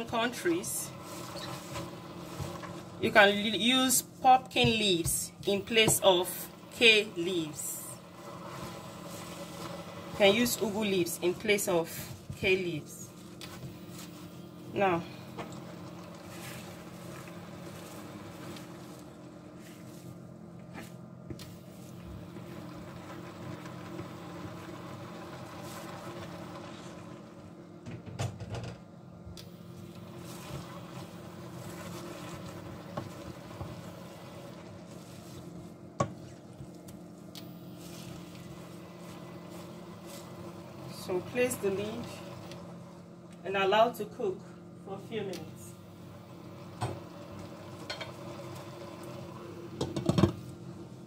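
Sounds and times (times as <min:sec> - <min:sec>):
appliance hum: 0:00.0 - 0:51.0.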